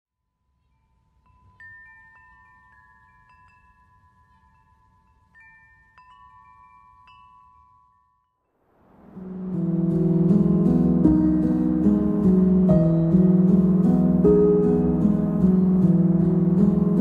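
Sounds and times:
soft chime tones ringing: 0.1 - 11.4.

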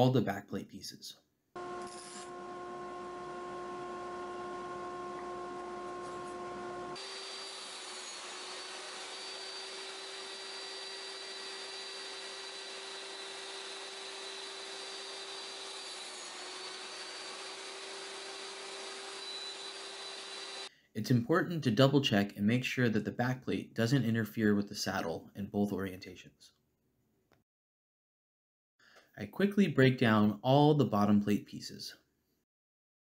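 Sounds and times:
woodshop machinery whirring: 1.6 - 20.7.

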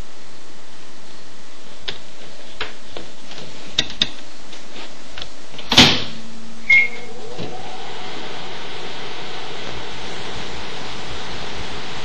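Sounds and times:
microwave door shutting: 5.6 - 7.6
keypad beep: 6.7 - 7.1.

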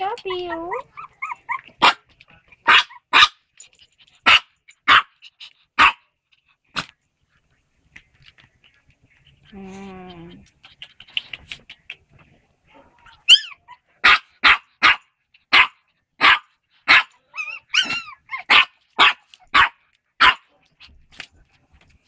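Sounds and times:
puppy barking and yelping: 0.1 - 6.9, 12.7 - 20.4.

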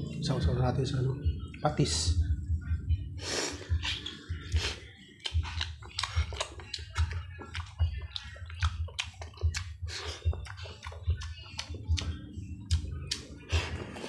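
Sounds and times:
chewing and mouth smacking: 3.7 - 14.0.

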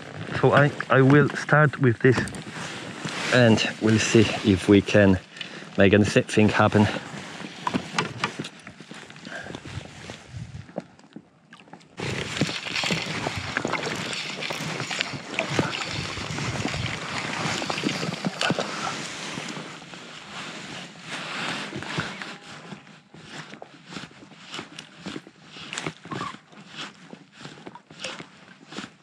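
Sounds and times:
water sloshing and splashing: 6.8 - 22.4.

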